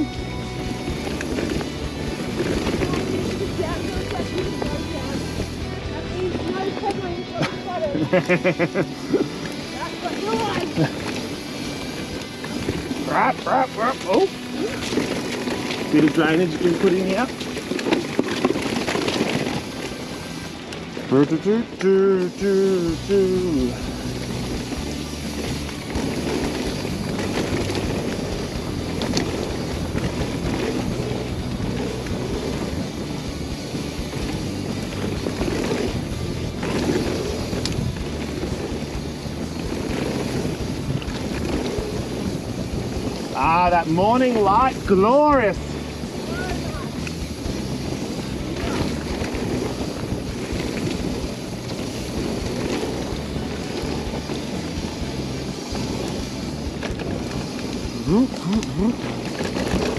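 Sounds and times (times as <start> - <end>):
bike tyres on dirt: 0.0 - 59.9.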